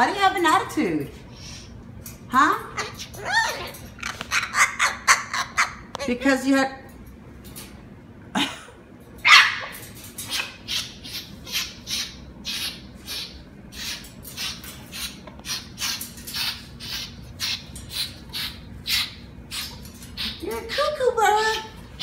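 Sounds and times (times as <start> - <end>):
cockatoo screeching: 9.3 - 21.0.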